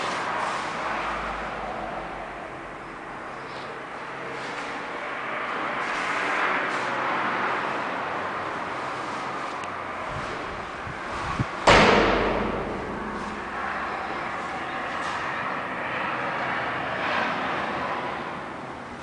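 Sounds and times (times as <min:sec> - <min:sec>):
rushing background noise: 0:00.0 - 0:19.0
hard knock: 0:11.7 - 0:14.3.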